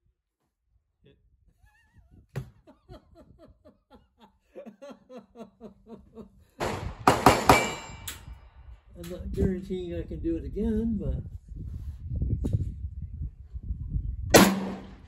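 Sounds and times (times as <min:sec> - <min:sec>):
person chuckling: 0:01.6 - 0:06.5.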